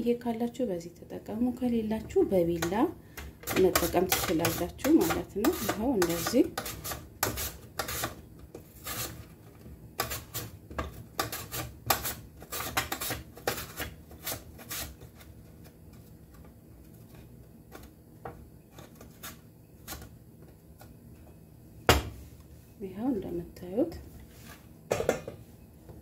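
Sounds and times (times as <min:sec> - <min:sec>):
potato scraping on mandoline slicer: 0:03.4 - 0:15.6.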